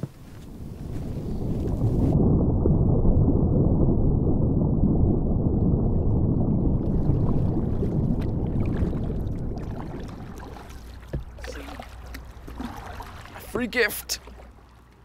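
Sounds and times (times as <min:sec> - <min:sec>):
wind buffeting microphone: 0:00.0 - 0:13.4
water splashes and drips: 0:06.8 - 0:15.0.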